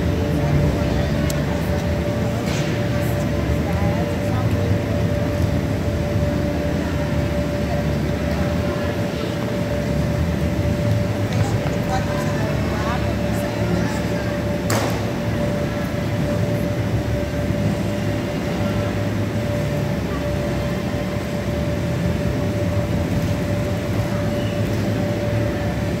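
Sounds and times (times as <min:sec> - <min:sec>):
busy hall din: 0:00.0 - 0:26.0.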